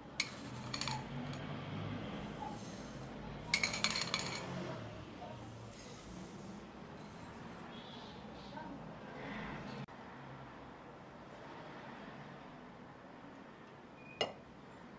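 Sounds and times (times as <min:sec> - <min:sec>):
spoon clinking against glass: 0:00.2 - 0:01.4, 0:03.5 - 0:04.6.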